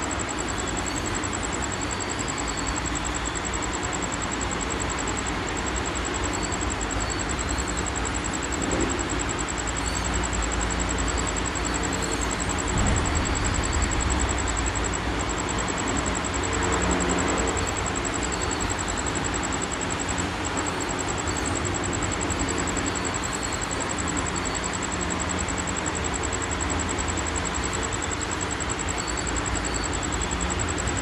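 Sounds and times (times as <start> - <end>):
faint high-pitched tone: 9.7 - 20.0
low hum: 11.8 - 18.0.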